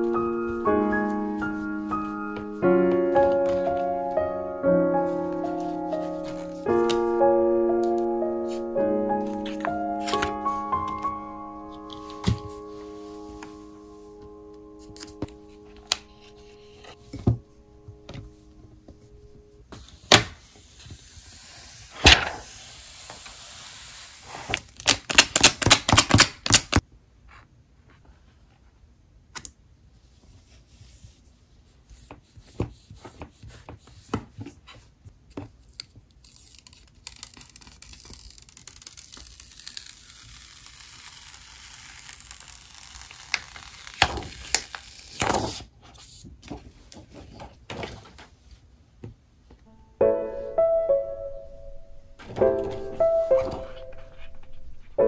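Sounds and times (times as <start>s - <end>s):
plastic film peeling and crackling: 20.0s - 26.8s, 35.6s - 45.7s.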